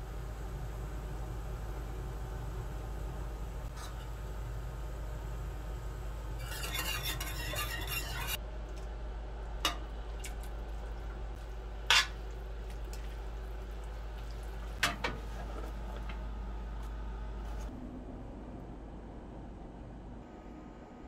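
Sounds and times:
sauce stirred in metal pan: 6.4s - 8.4s, 9.8s - 15.7s.

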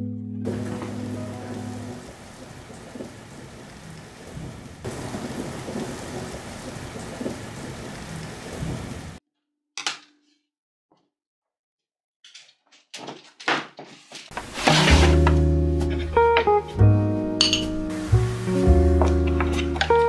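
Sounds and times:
steady rain falling: 0.5s - 9.2s, 14.3s - 20.0s.

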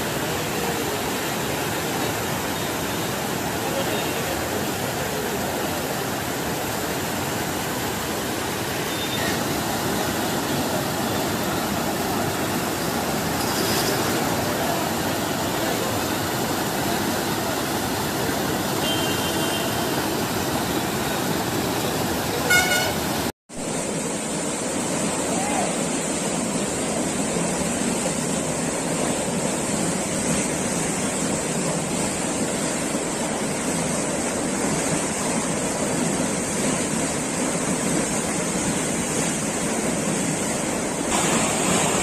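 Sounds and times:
floodwater rushing: 0.0s - 42.0s
vehicle horn tooting: 8.8s - 9.4s, 18.8s - 19.9s, 22.4s - 23.2s.

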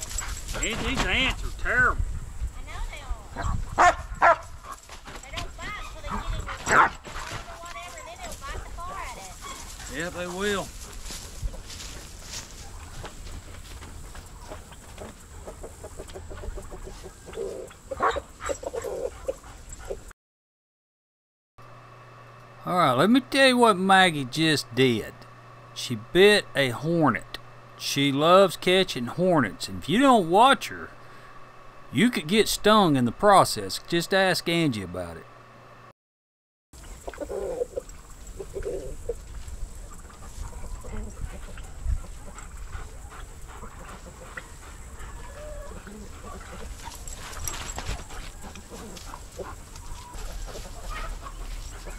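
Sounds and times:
chickens clucking: 5.7s - 20.1s, 36.8s - 51.9s.

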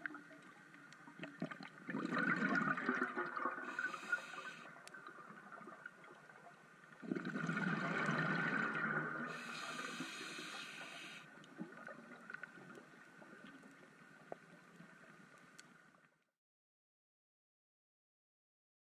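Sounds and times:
exhaled bubbles gushing underwater: 1.0s - 10.3s
regulator air hiss: 3.7s - 4.7s, 9.3s - 11.3s.

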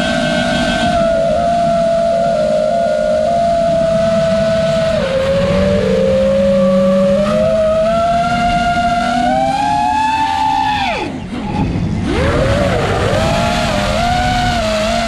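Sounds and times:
quadcopter motors whining: 0.0s - 15.0s
rushing air noise: 0.0s - 15.0s.

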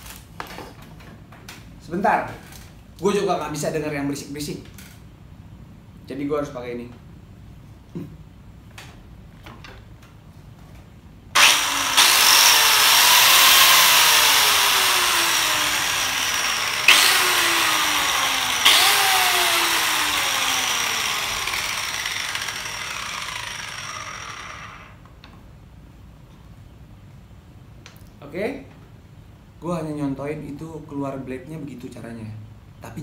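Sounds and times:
biscuit jointer motor running: 11.4s - 25.0s.

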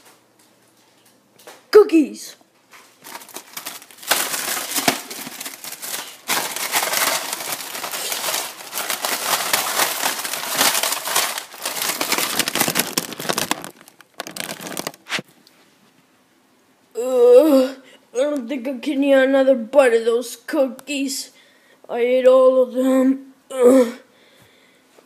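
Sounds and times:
plastic packet crinkling: 3.0s - 15.2s.

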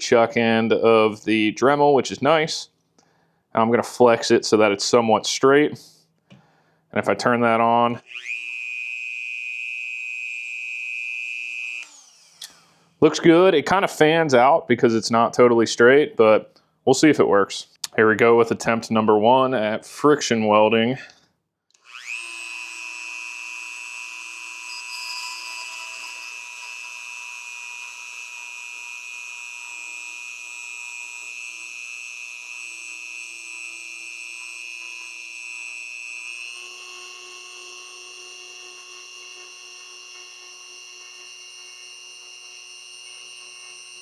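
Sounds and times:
rotary tool high whine: 8.0s - 13.2s, 21.8s - 44.0s.

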